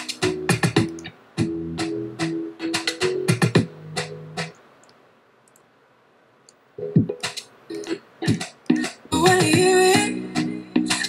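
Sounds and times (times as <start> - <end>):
instrumental music with drum beat: 0.0 - 4.6, 6.8 - 11.0.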